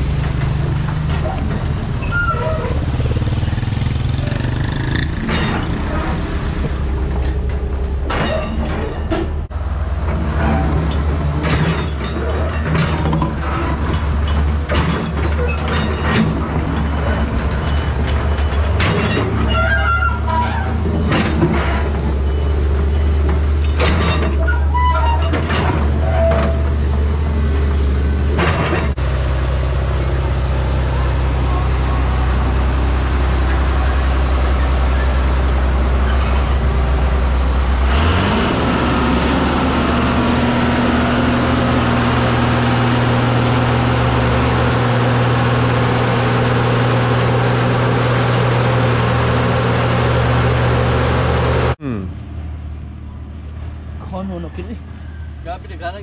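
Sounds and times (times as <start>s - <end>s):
machinery engine running under load: 0.0s - 54.1s
metal clanks: 5.0s - 6.2s, 7.2s - 22.1s, 23.3s - 26.8s.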